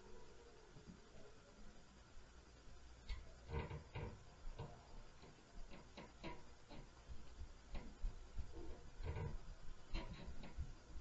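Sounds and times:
footsteps and thuds through ceiling: 3.5 - 11.0.

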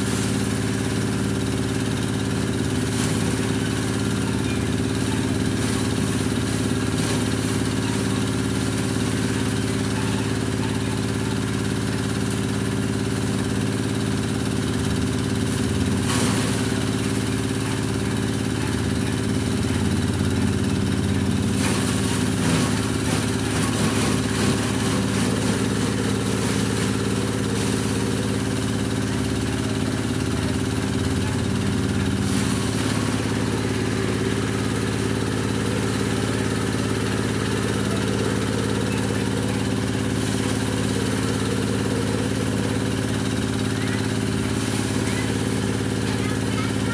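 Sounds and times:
small engine running: 0.0 - 46.9
blades chopping grass: 15.8 - 16.9, 20.5 - 30.1.

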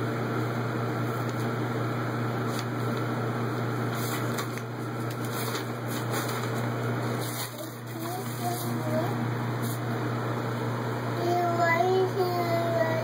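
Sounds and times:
motor humming: 0.0 - 13.0.

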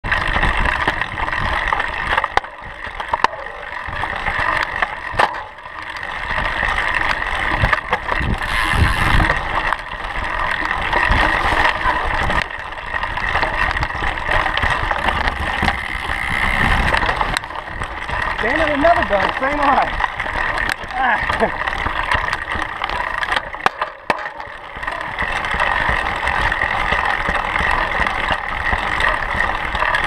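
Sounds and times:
bike rattling and knocking: 0.0 - 30.0
bike tyre noise on dirt: 0.0 - 30.0
wind on microphone: 7.6 - 9.4, 15.3 - 17.4.

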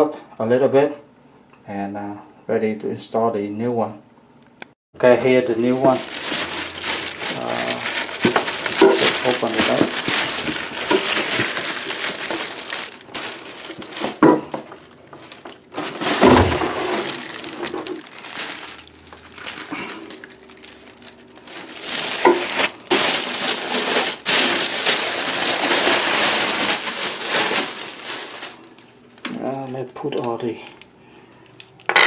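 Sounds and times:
paper and plastic wrapping crinkling: 5.4 - 31.8
cardboard box rustling: 5.9 - 19.7.

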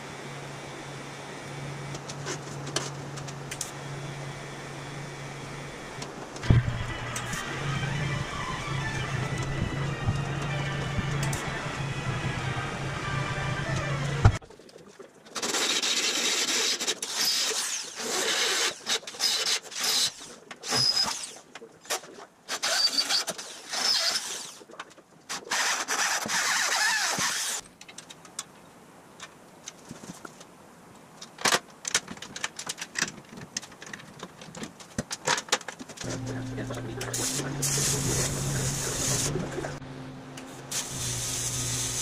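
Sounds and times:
electric drill squealing in metal: 6.6 - 14.4, 17.1 - 21.4, 22.5 - 24.6, 25.5 - 27.6.

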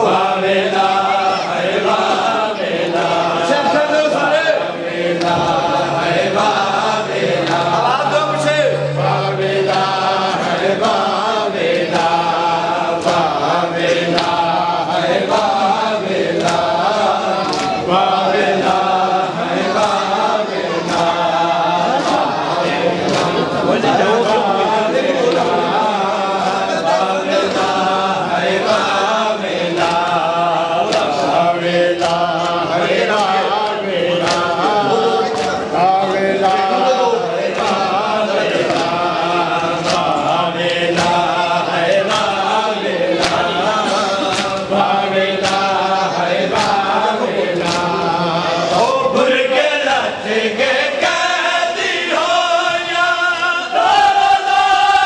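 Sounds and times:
group chanting a lament: 0.0 - 55.0
chest-beating slaps: 5.0 - 14.6, 28.7 - 36.6, 37.5 - 48.1.

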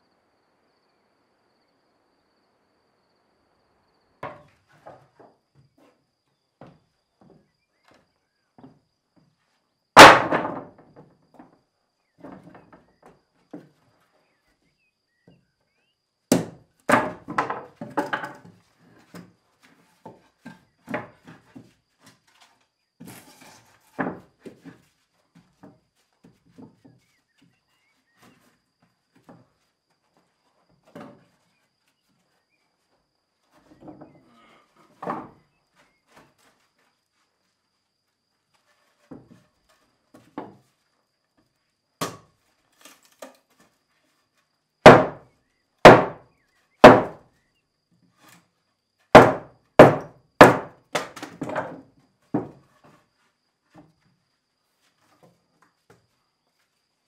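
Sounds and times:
hammer striking wooden floorboards: 10.0 - 10.8, 44.8 - 46.2, 46.8 - 47.2, 49.1 - 51.6.

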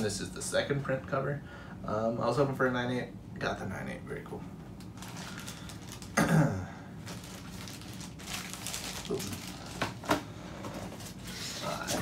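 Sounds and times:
plastic rustling and clicking: 7.1 - 11.2.

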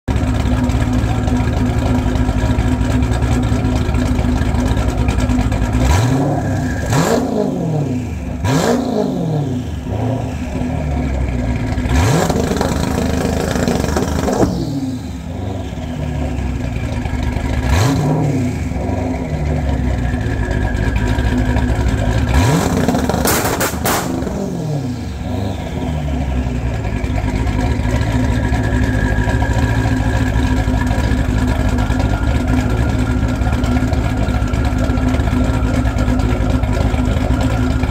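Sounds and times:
car engine idling: 0.0 - 37.9
engine revving: 5.6 - 37.9
exhaust pops and bangs: 11.8 - 14.7, 21.5 - 24.5.

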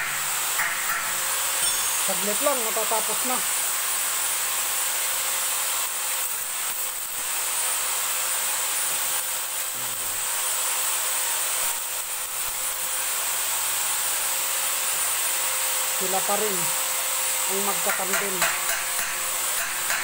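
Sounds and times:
arc welding hiss: 0.0 - 20.0.

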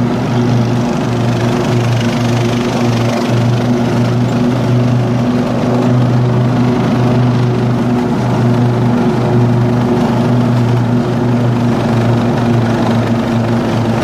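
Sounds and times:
lawn mower engine running: 0.0 - 14.0.

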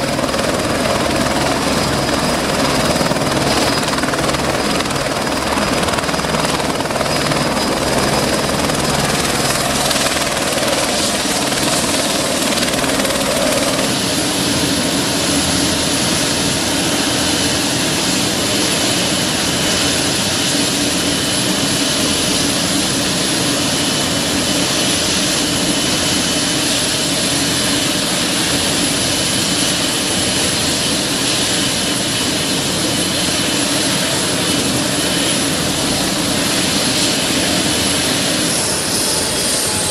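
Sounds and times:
helicopter rotor noise: 0.0 - 39.9
helicopter turbine whine: 0.0 - 39.9.

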